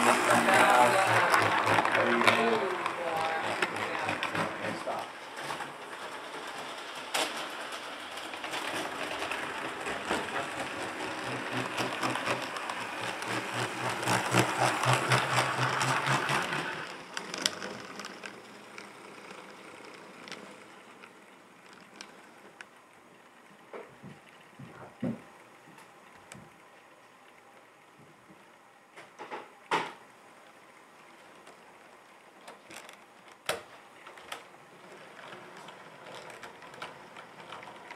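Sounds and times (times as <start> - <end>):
model train wheels clicking: 0.0 - 22.9, 32.5 - 37.9
whirring motor and gears: 0.0 - 28.7, 30.4 - 37.9.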